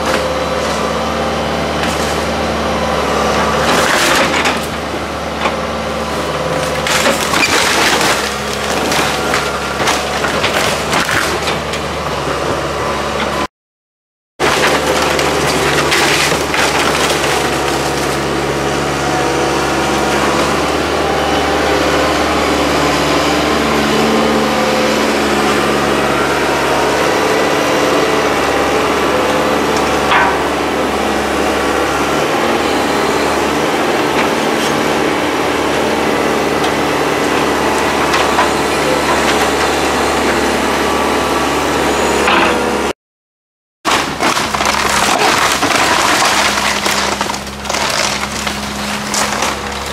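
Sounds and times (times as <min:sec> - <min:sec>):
excavator diesel engine running: 0:00.0 - 0:13.5, 0:14.4 - 0:42.9, 0:43.9 - 0:49.9
wood cracking and splintering: 0:03.2 - 0:12.0, 0:14.4 - 0:20.9, 0:29.5 - 0:30.6, 0:36.4 - 0:39.8, 0:43.9 - 0:49.9.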